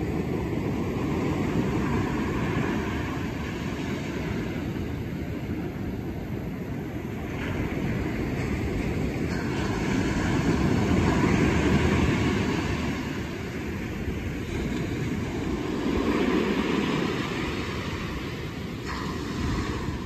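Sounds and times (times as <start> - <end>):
ocean surf breaking: 0.0 - 20.0.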